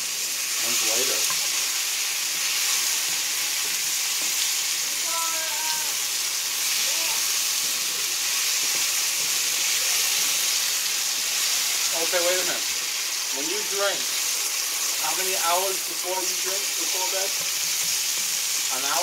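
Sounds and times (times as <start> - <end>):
food sizzling in a pan: 0.0 - 19.0
wooden spatula stirring: 6.6 - 11.9, 17.3 - 18.7.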